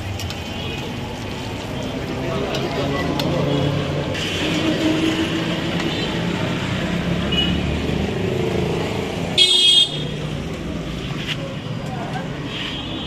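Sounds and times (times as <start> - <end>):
passing traffic rumble: 0.0 - 13.0
high-pitched vehicle horn: 9.4 - 10.1.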